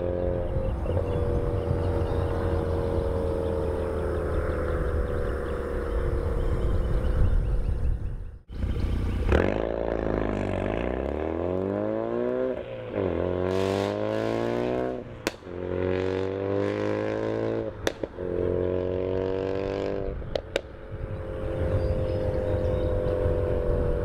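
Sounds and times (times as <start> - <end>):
car engine accelerating: 0.0 - 7.9, 8.5 - 24.0
exhaust pops: 17.8 - 18.2.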